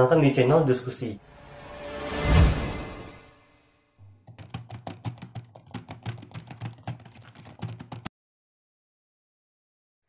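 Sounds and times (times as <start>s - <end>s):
computer keyboard typing: 4.2s - 8.1s.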